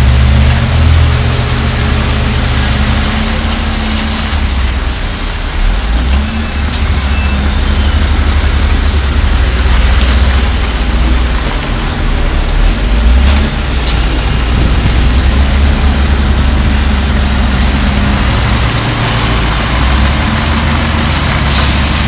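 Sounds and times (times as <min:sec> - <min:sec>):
truck diesel engine running: 0:00.0 - 0:22.0
wheel loader working gravel: 0:00.0 - 0:22.0.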